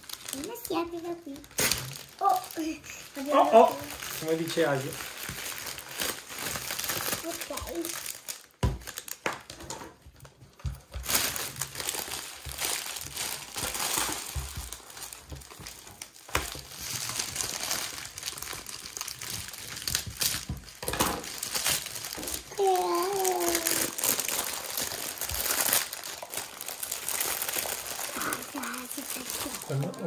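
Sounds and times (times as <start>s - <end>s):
foil wrapping crinkling: 0.0s - 30.0s.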